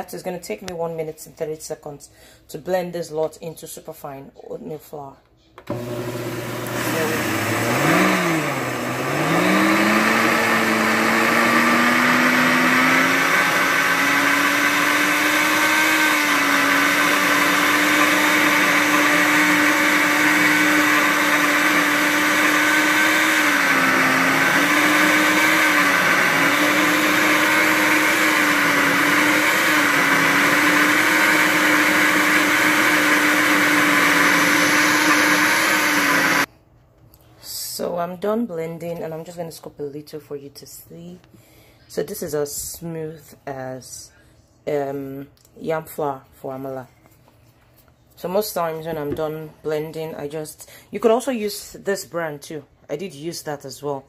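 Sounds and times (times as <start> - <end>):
blender motor grinding oats: 5.7 - 36.5.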